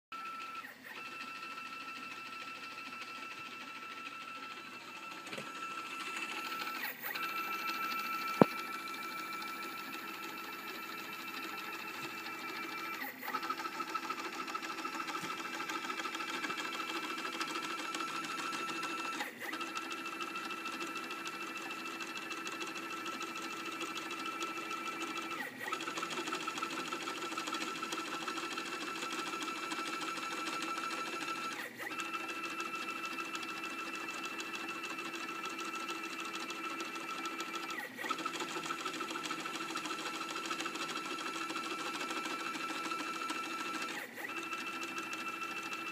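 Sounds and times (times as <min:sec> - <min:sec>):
stepper motor whine: 0:00.2 - 0:19.9.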